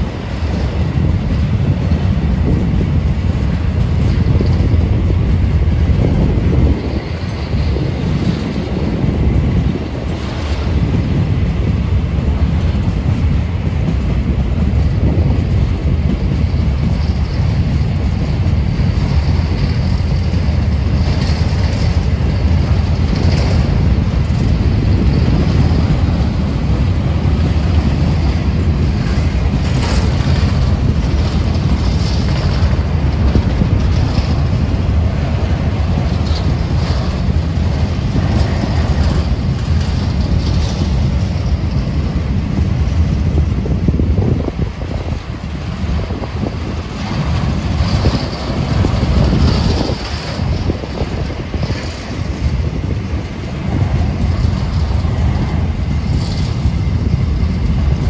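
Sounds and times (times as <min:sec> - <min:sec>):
train wheels rumbling on track: 0:00.0 - 0:58.0.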